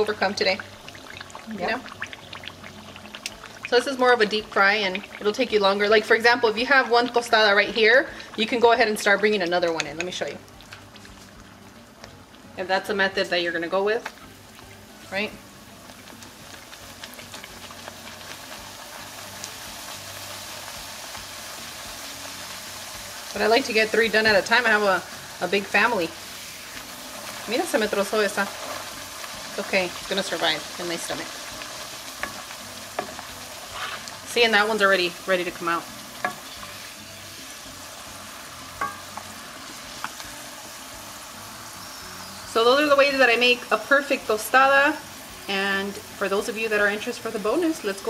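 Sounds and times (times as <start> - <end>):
tortillas sizzling in hot oil: 0.0 - 48.0
oil pops and crackles: 0.3 - 5.5, 9.6 - 12.2, 13.9 - 14.7, 15.8 - 19.6, 38.8 - 40.3.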